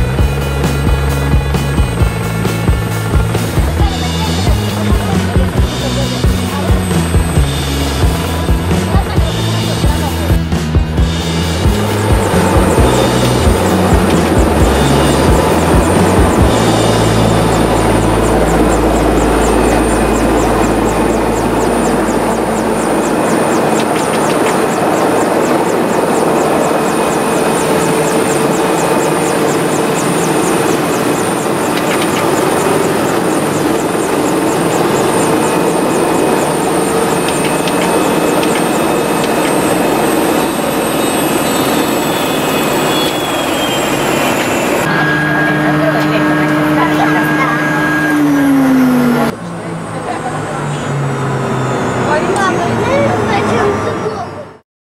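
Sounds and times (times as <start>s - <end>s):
low deep hum: 0.0s - 52.1s
helicopter turbine and rotor: 0.0s - 54.6s.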